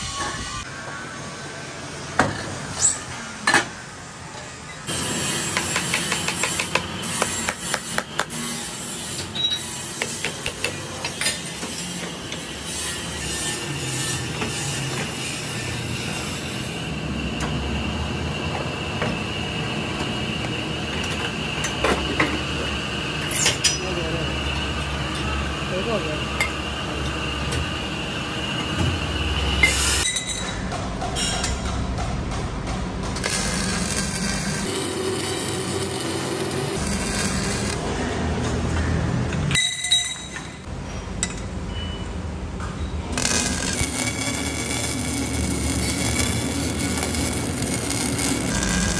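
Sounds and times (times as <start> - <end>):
welding arc crackling and hissing: 33.2 - 38.0, 43.2 - 48.9
plate rolling machine whining: 33.2 - 38.1, 43.0 - 48.9.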